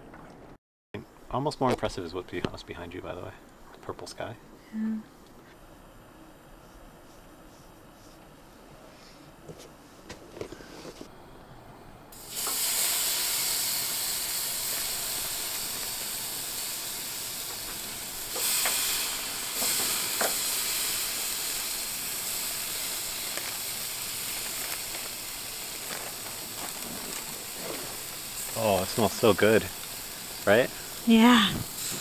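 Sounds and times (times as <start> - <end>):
meat sizzling on a grill: 12.1 - 32.0.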